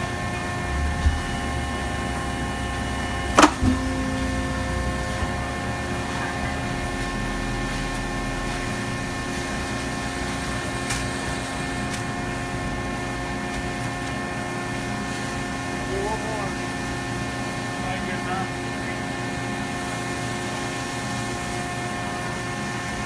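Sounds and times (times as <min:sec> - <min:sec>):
machinery humming and whining: 0:00.0 - 0:23.0
low rumble: 0:00.4 - 0:10.1.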